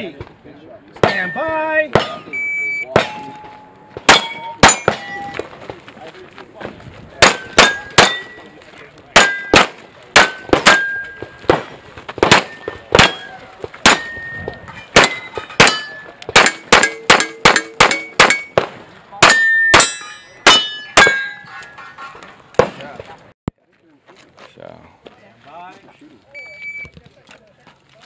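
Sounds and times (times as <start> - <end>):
metallic ring of steel plate: 3.0 - 5.4, 12.5 - 18.6, 19.2 - 22.3
rapid pistol shots: 9.2 - 13.2, 15.0 - 19.9.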